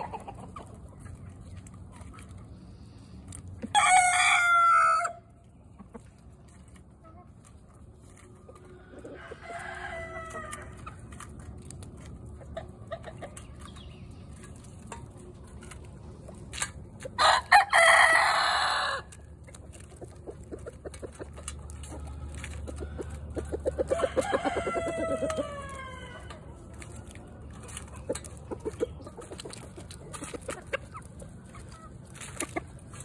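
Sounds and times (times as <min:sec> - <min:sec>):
chickens clucking: 0:00.0 - 0:33.0
rooster crowing: 0:17.2 - 0:19.1, 0:23.9 - 0:26.4.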